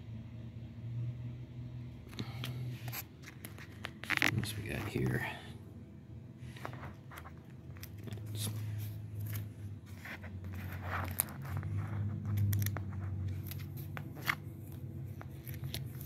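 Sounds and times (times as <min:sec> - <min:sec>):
low steady hum: 0:00.0 - 0:16.0
postcards rustling: 0:02.1 - 0:05.2, 0:06.4 - 0:16.0.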